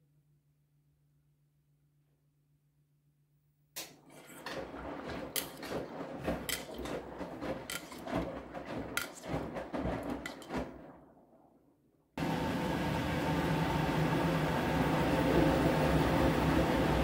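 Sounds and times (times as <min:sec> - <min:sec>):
laundry sloshing in washing machine: 0:03.9 - 0:11.6, 0:13.3 - 0:17.0.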